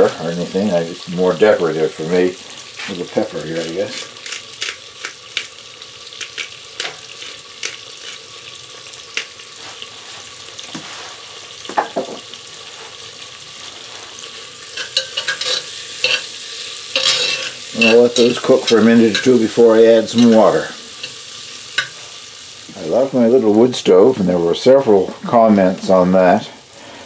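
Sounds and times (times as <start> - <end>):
onions sizzling in hot oil: 0.0 - 27.0
spoon scraping and clinking pot: 14.7 - 16.3, 16.9 - 19.4, 20.1 - 21.2, 21.8 - 22.1.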